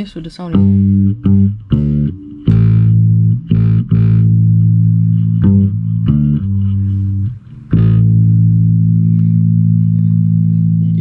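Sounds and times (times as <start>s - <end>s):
plucked bass notes: 0.0s - 11.0s.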